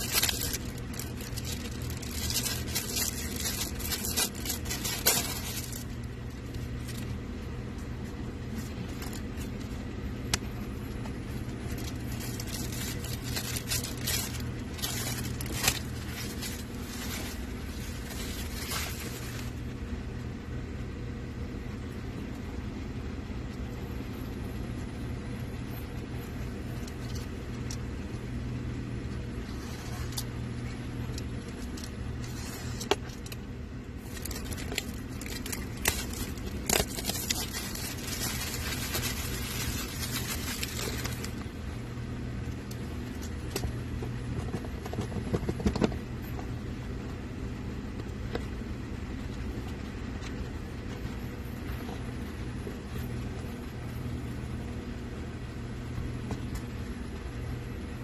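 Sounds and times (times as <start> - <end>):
packaging clicks taps and rustles: 0.0 - 7.2, 9.0 - 19.6, 34.0 - 41.5, 42.5 - 46.5
steady low hum: 0.0 - 58.0.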